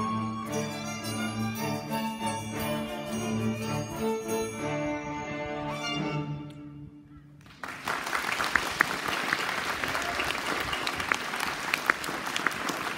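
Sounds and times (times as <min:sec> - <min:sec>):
string ensemble playing: 0:00.0 - 0:07.1
audience applause: 0:07.5 - 0:12.9.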